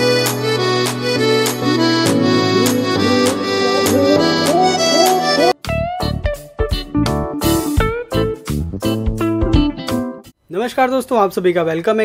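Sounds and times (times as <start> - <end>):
held chords: 0.0 - 8.4
tune with steady beat: 0.0 - 9.8.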